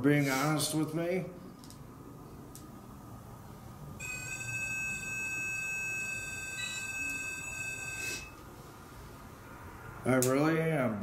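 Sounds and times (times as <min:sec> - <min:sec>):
high electronic tone: 0:04.0 - 0:08.4.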